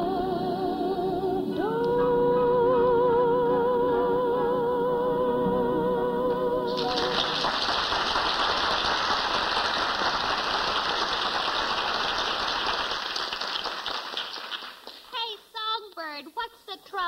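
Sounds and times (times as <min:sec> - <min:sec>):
audience applauding: 0:06.7 - 0:15.2.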